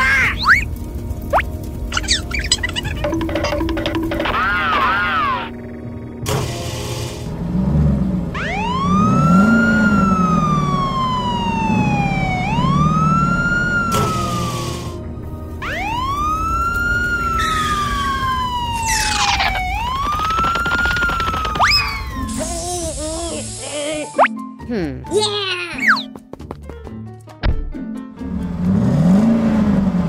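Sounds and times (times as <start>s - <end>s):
low vehicle rumble: 5.5s - 23.3s
fire engine siren wailing: 8.3s - 22.5s.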